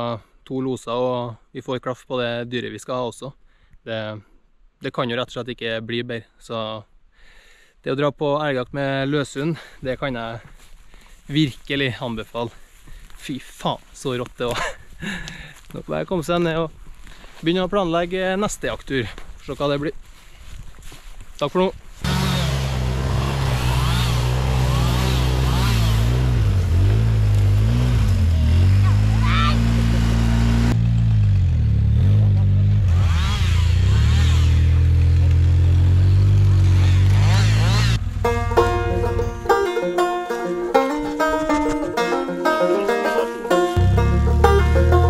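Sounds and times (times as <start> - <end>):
atv engine running: 22.0 - 45.0
deep low musical part: 38.0 - 45.0
plucked-string notes: 38.0 - 45.0.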